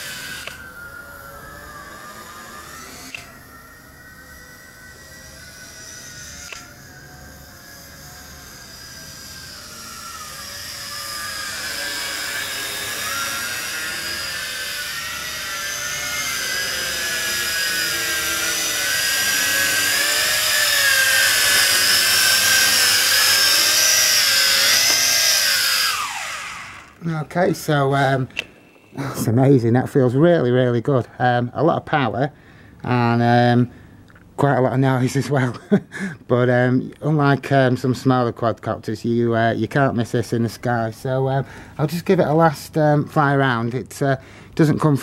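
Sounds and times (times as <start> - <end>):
drone propellers whining: 0.0 - 29.2.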